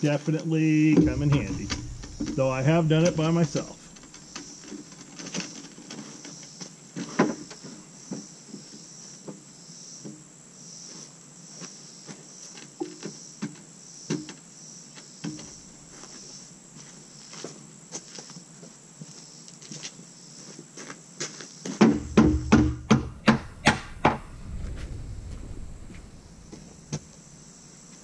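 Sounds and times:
insects chirping: 0.0s - 28.0s
wooden knocks and clunks: 0.9s - 6.1s, 21.8s - 27.2s.

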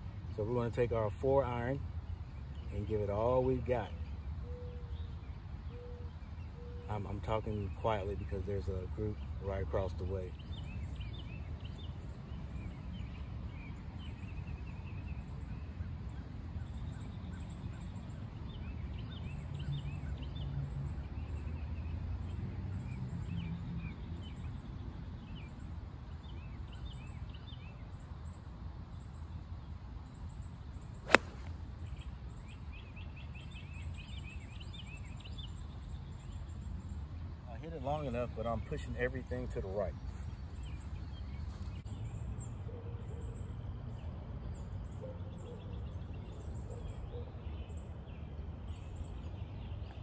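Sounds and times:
golf club striking ball: 31.0s - 31.6s.

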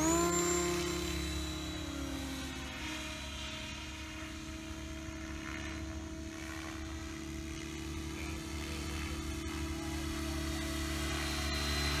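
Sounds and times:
rc helicopter rotor whine: 0.0s - 12.0s.

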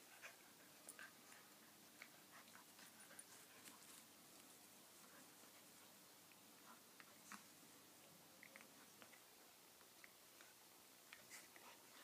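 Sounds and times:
dogs scuffling at play: 0.9s - 5.8s.

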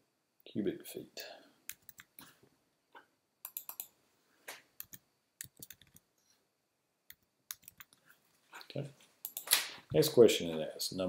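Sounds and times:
computer keys typing: 1.7s - 2.2s, 3.4s - 4.0s, 4.8s - 6.0s, 7.1s - 8.0s, 9.2s - 9.6s.

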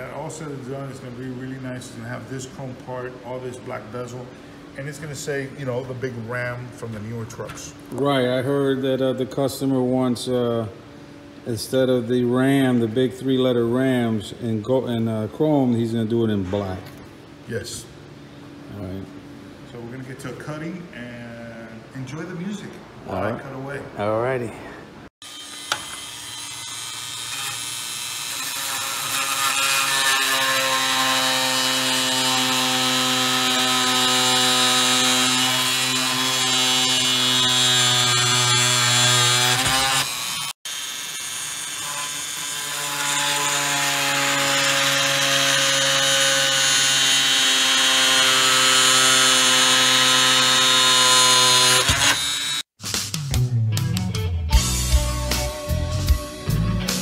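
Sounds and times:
rotary tool cutting metal mesh: 25.3s - 52.5s.

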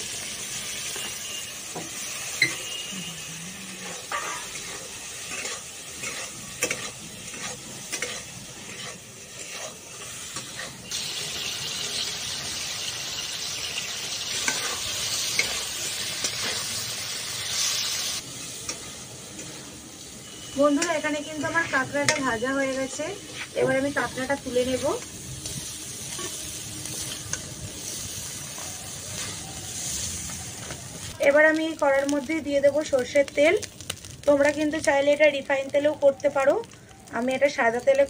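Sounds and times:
crab sizzling in oil: 0.0s - 38.0s
spatula scraping a pan: 3.7s - 11.1s, 14.3s - 15.6s.

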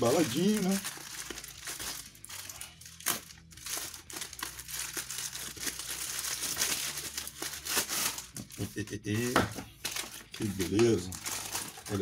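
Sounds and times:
knife slitting plastic bag: 0.0s - 8.8s
plastic crinkling: 0.0s - 12.0s
plastic tearing: 0.0s - 12.0s.

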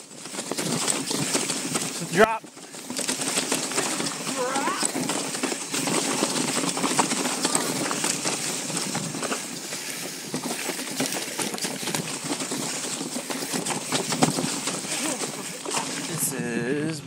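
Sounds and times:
bike clattering: 0.0s - 16.3s
bike tyres rumbling over ground: 0.0s - 16.8s.

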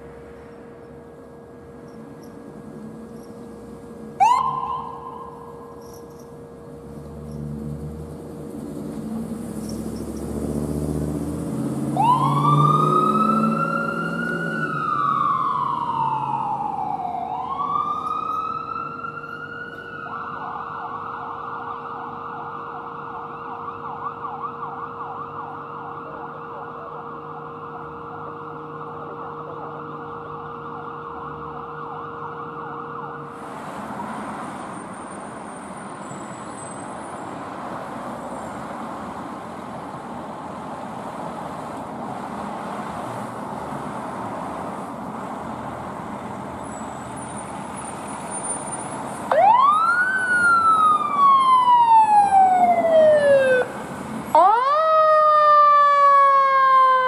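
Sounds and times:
electronic siren wailing and yelping: 4.2s - 5.9s, 12.0s - 19.4s, 49.3s - 53.7s, 54.4s - 57.0s.

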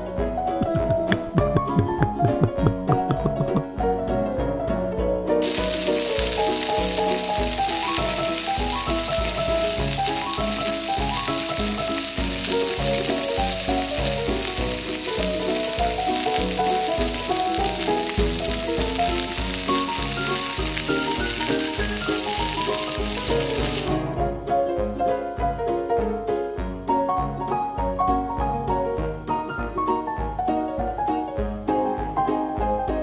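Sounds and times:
light background music: 0.0s - 33.0s
frying sizzle: 0.7s - 3.8s, 5.4s - 24.2s.

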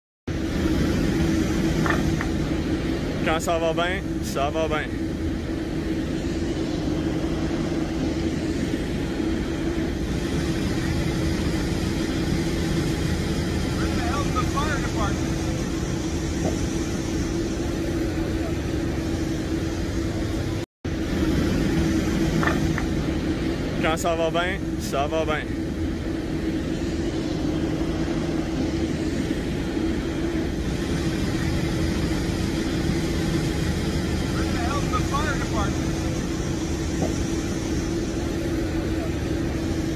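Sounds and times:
low engine rumble and hum: 0.3s - 39.9s.

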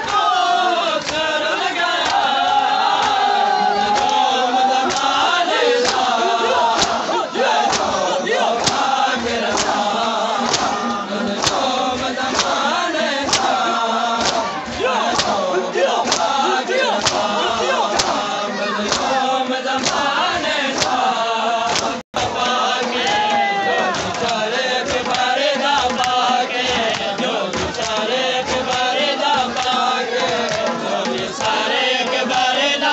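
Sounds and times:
men chanting a lament: 0.0s - 32.9s
hands slapping chests: 1.0s - 1.2s, 3.8s - 4.3s, 4.9s - 5.2s, 5.8s - 12.6s, 13.2s - 13.6s, 14.2s - 19.2s, 19.8s - 20.1s, 20.8s - 21.0s, 21.7s - 22.0s, 23.9s - 31.6s.

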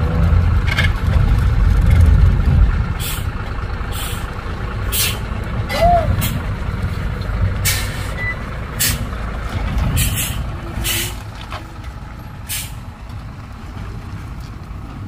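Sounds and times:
truck diesel engine running: 0.0s - 15.0s
air brake hisses: 3.9s - 4.2s, 4.9s - 5.2s, 8.8s - 9.0s, 10.0s - 11.2s, 12.5s - 12.8s.

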